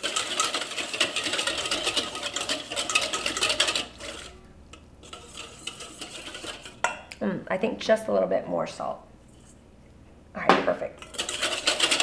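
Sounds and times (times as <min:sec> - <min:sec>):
whisk clicking against metal bowl: 0:00.0 - 0:07.0, 0:11.0 - 0:12.0.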